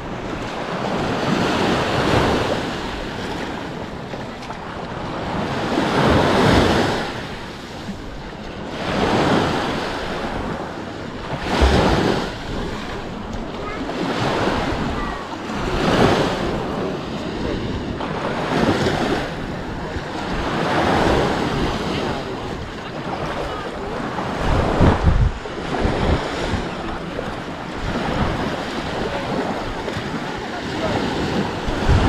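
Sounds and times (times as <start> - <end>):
sea waves on a sandy beach: 0.0 - 32.0
wind buffeting the microphone: 0.0 - 32.0.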